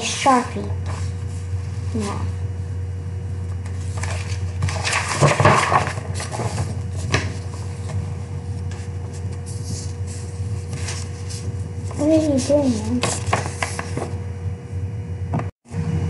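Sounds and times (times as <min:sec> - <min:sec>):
steady low hum: 0:00.0 - 0:16.0
paper rustling: 0:03.5 - 0:14.2.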